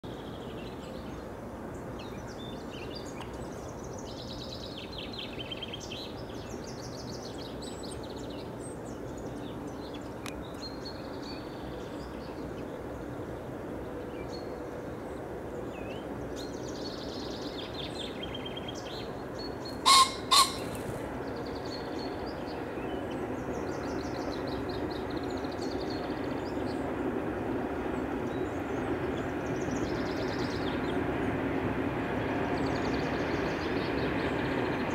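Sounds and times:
songbirds singing: 0.1s - 31.3s, 32.1s - 34.9s
pheasant two-note crow: 19.8s - 20.7s.

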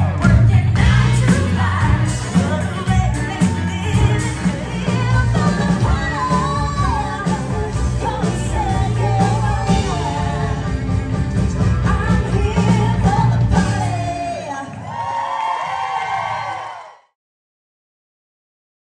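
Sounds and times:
women singing: 0.0s - 11.0s, 11.8s - 15.0s
country band playing: 0.0s - 14.7s.

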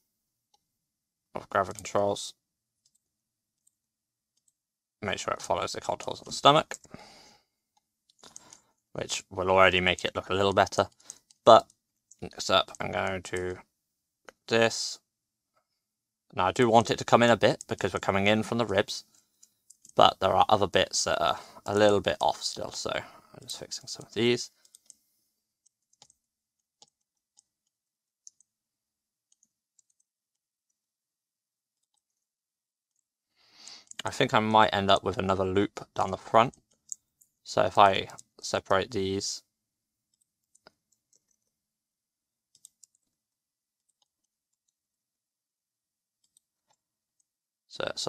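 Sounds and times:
mouse and keyboard clicks: 23.7s - 25.0s.

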